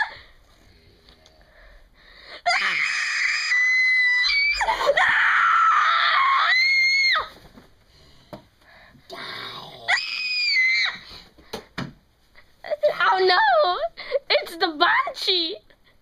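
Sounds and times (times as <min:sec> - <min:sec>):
high-pitched scream: 0:02.5 - 0:07.3, 0:09.9 - 0:11.0.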